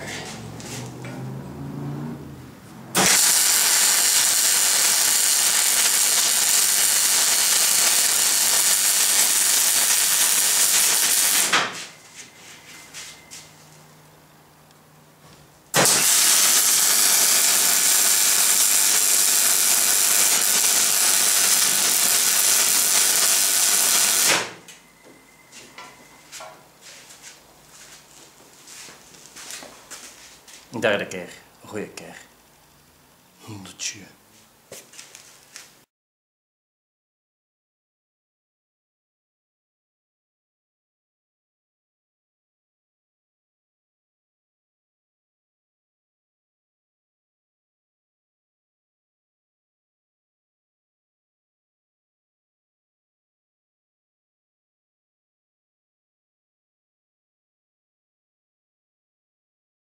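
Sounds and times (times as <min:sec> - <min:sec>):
welding arc sizzling: 0:02.9 - 0:11.8, 0:15.8 - 0:24.6.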